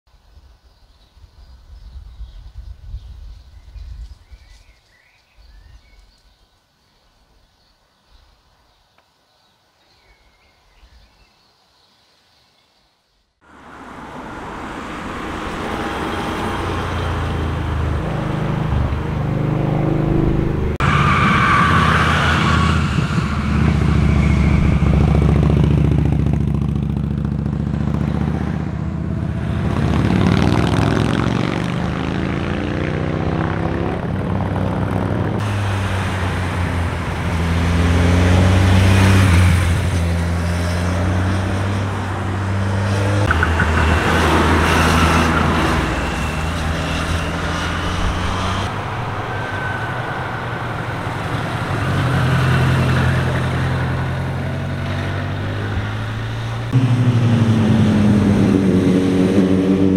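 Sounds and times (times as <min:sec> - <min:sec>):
motorcycle engines: 0:13.4 - 0:59.9.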